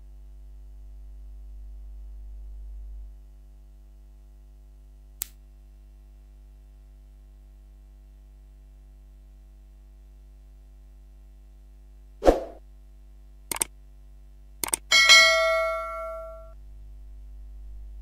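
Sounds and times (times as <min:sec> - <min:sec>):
low hum: 0:00.1 - 0:03.3, 0:14.6 - 0:18.0
sharp click: 0:13.5 - 0:13.7, 0:14.6 - 0:14.9.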